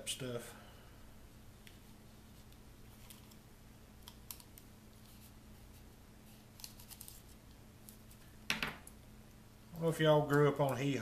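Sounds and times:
faint room hum: 0.0s - 11.0s
paper and small parts clicking: 4.0s - 5.2s, 6.5s - 8.0s.

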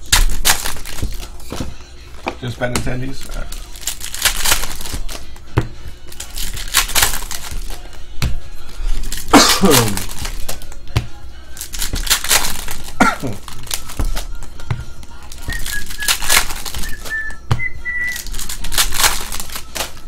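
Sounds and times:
foil wrappers tearing and crinkling: 0.0s - 1.6s, 2.4s - 5.4s, 6.1s - 8.0s, 8.6s - 10.8s, 11.5s - 17.3s, 17.9s - 20.0s
cards riffled: 3.2s - 5.4s, 6.1s - 8.0s, 8.6s - 10.8s, 11.6s - 17.4s, 18.0s - 20.0s.

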